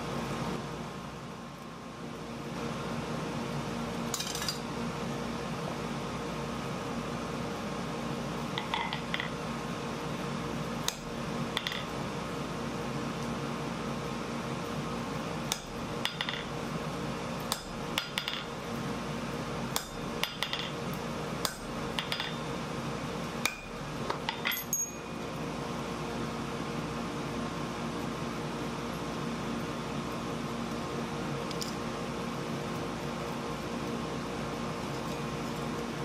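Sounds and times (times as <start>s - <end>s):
steady hum: 0.0s - 36.0s
hammer striking steel on anvil: 17.5s - 18.5s, 19.8s - 20.8s, 21.4s - 22.4s, 23.4s - 25.0s.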